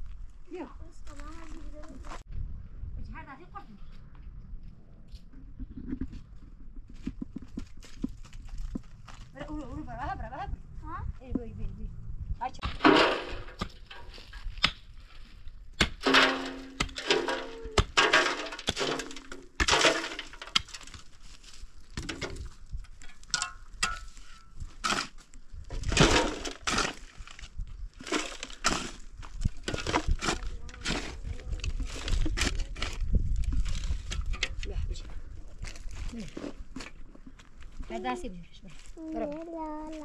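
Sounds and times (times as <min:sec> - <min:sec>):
low rumble: 0:08.0 - 0:12.8
sharp knocks and cracks: 0:12.6 - 0:14.9, 0:15.8 - 0:21.1, 0:21.9 - 0:34.6.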